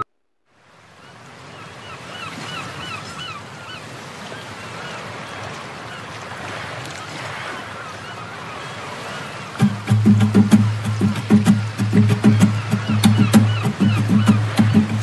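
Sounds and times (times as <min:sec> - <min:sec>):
wind and water noise: 0:00.0 - 0:15.0
high chirping calls: 0:09.6 - 0:15.0.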